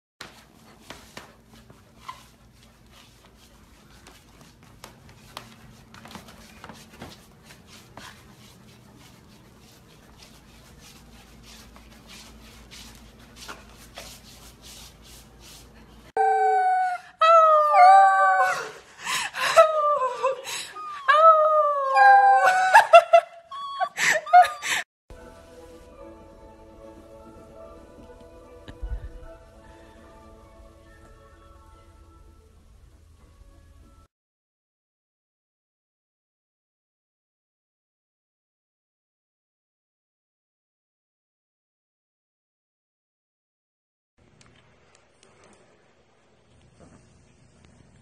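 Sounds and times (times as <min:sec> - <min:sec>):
puppy howling: 0:16.2 - 0:18.8, 0:19.6 - 0:22.9.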